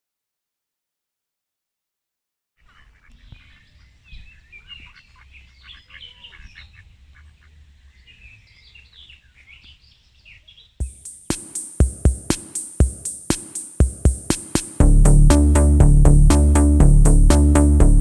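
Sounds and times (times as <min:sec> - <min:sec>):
birds chirping: 0:02.6 - 0:14.8.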